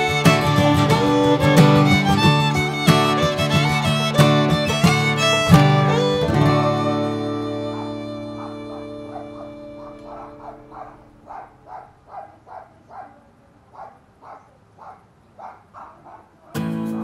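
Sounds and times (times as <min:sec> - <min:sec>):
fiddle and guitar music: 0:00.0 - 0:11.2, 0:16.6 - 0:17.0
small dog yapping: 0:06.6 - 0:13.2, 0:13.8 - 0:17.0.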